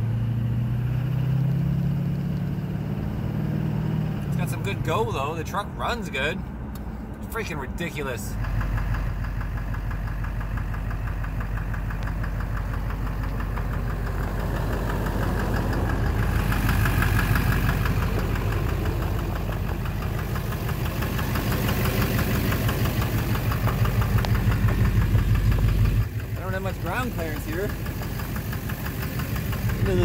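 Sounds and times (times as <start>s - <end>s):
diesel engine running: 0.0s - 30.0s
rapid engine knock: 8.4s - 30.0s.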